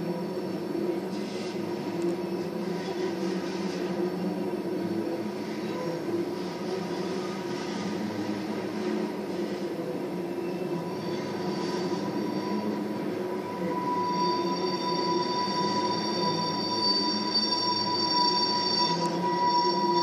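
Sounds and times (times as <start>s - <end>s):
rolling train noise: 0.0s - 20.0s
train wheels squealing: 10.2s - 20.0s.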